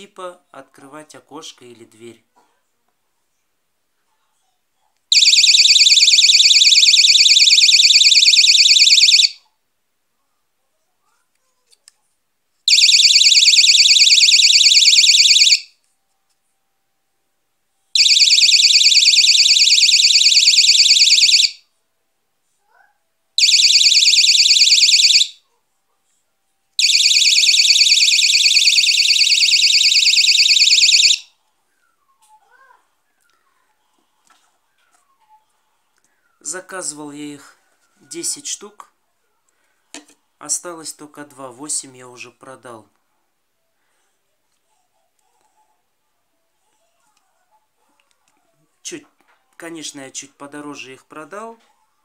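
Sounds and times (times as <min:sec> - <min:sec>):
alarm siren pulsing: 0:05.1 - 0:09.4, 0:12.7 - 0:15.6, 0:18.0 - 0:21.6, 0:23.4 - 0:25.3, 0:26.8 - 0:31.3.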